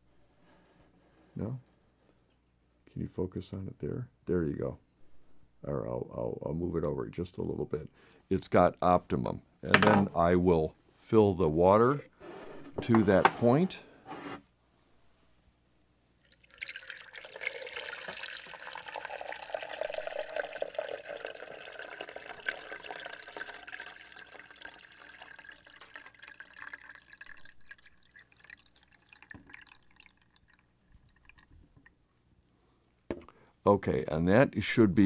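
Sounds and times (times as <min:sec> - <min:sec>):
water pouring into reservoir: 0:16.2 - 0:32.0
water dripping and trickling: 0:16.2 - 0:32.2.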